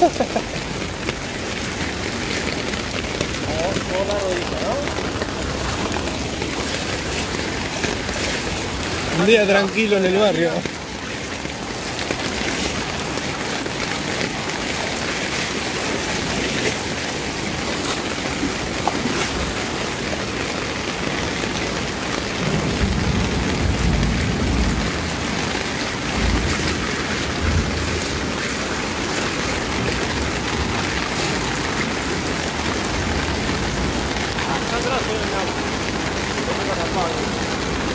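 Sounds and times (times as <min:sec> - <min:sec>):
heavy rain on flooded street: 0:00.0 - 0:37.9.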